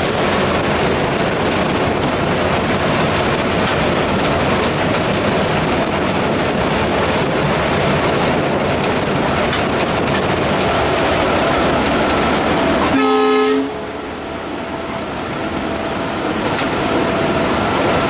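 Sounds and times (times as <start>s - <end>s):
locomotive cab din at speed: 0.0s - 18.0s.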